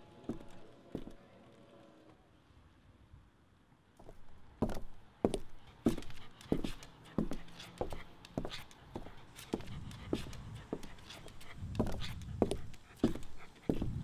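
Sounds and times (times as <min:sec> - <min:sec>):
footsteps walking: 0:00.3 - 0:01.2, 0:04.0 - 0:14.0.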